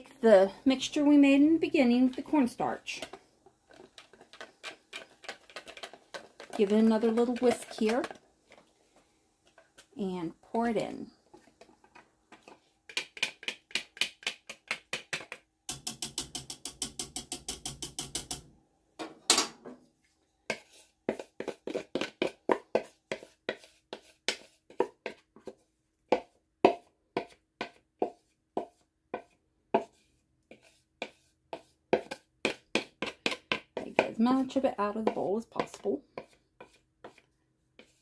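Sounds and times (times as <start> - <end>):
wooden spoon scraping a bowl: 0.1 - 15.4, 20.4 - 38.0
whisk scraping a bowl: 2.0 - 8.7, 20.4 - 25.6, 26.2 - 38.0.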